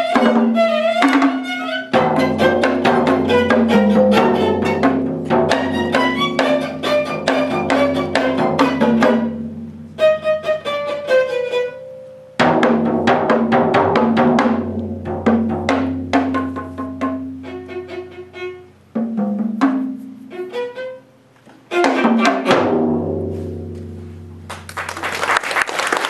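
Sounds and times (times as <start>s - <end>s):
rapid drum strokes: 0.0s - 11.2s, 12.4s - 20.9s, 21.7s - 24.6s
bowed viola: 0.0s - 12.4s, 16.2s - 19.0s, 19.9s - 23.7s.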